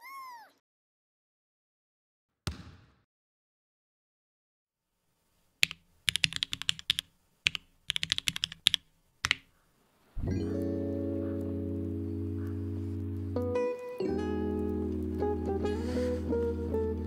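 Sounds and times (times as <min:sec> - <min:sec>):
plastic keycaps clacking: 0:05.6 - 0:09.5.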